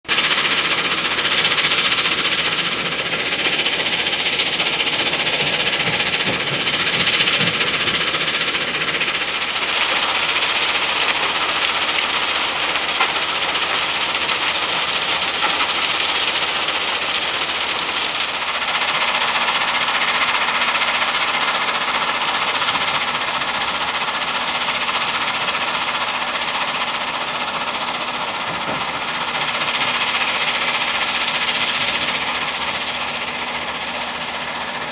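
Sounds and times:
machine drone with whine: 0:00.1 - 0:34.9
stone crusher clattering: 0:00.2 - 0:18.4.

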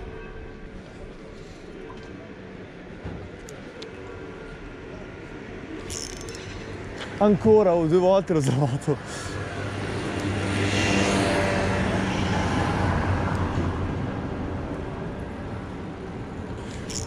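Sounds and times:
passing vehicle engine hum: 0:08.8 - 0:17.0.

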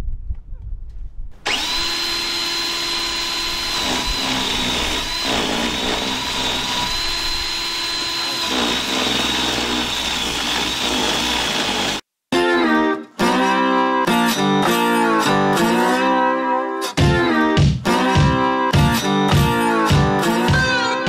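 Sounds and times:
cordless drill motor whine: 0:01.4 - 0:12.0.

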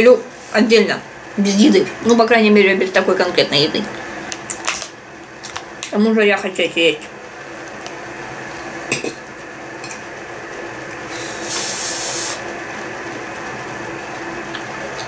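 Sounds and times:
kettle hissing: 0:07.3 - 0:15.0.

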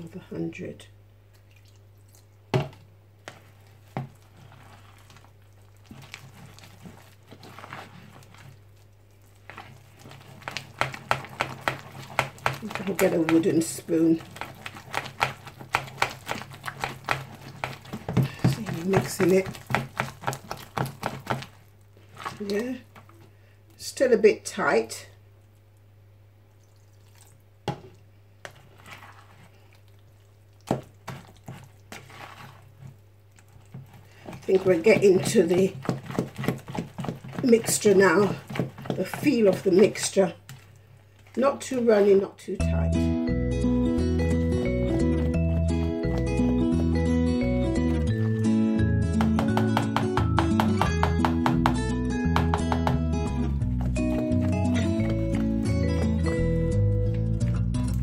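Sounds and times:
fork stirring batter in bowl: 0:03.2 - 0:23.3, 0:27.1 - 0:42.1, 0:52.4 - 0:56.6
fork knocking on plastic bowl: 0:10.4 - 0:13.6, 0:14.2 - 0:21.6, 0:49.2 - 0:53.2.

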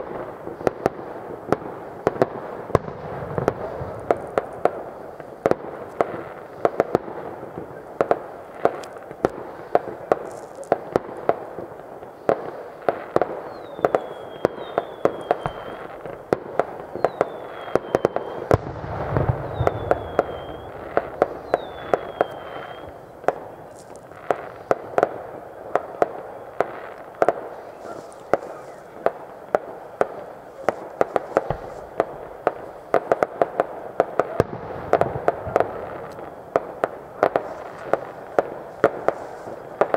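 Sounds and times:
fireworks bangs and pops: 0:00.0 - 0:39.9
falling whistles: 0:13.5 - 0:16.3, 0:17.0 - 0:23.8.

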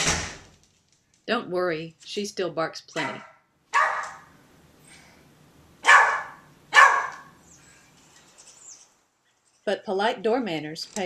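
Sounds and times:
dog barking: 0:03.0 - 0:04.3, 0:05.8 - 0:07.4.

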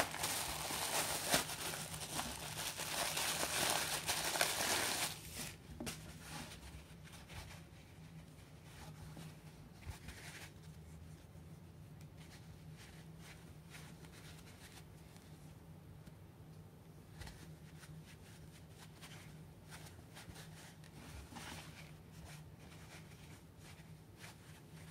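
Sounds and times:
sponges rustling in hands: 0:00.0 - 0:11.4
low room hum: 0:00.0 - 0:24.9.

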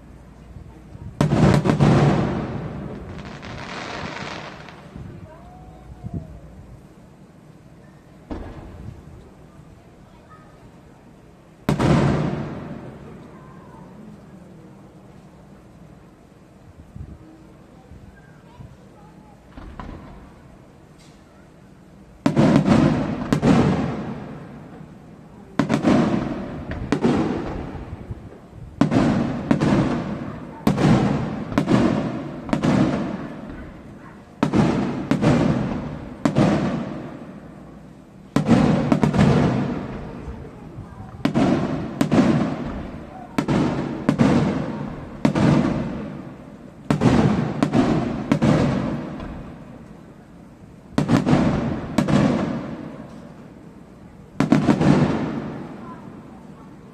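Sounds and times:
firework shells bursting: 0:41.2 - 0:50.0.

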